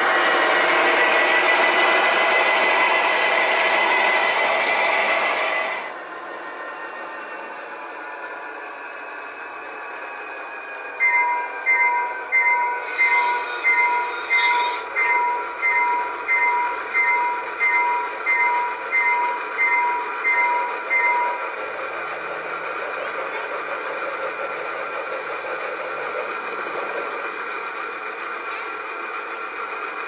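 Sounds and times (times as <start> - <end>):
locomotive bell ringing: 10.9 - 21.4.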